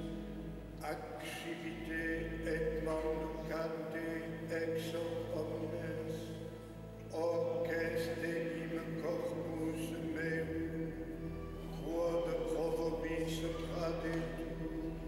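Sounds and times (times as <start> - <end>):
sung liturgical chant: 0.0 - 15.0.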